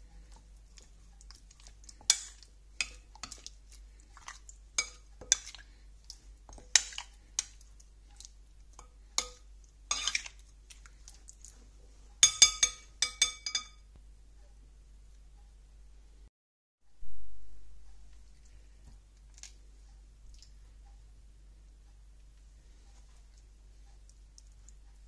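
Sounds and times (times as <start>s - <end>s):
metal spoon clinking on glass bowl: 9.2s - 10.3s, 12.2s - 13.8s.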